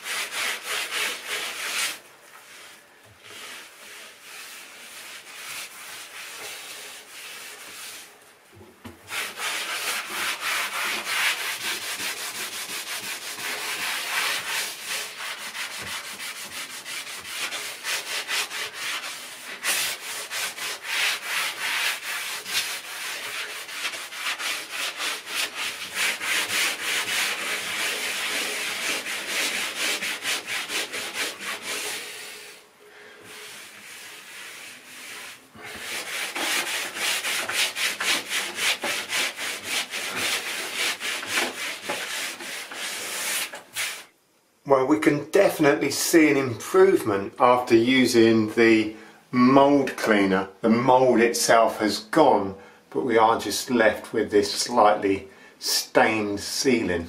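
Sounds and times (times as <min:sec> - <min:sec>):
sponge scrubbing a ceiling: 0:00.0 - 0:08.3, 0:09.0 - 0:44.1.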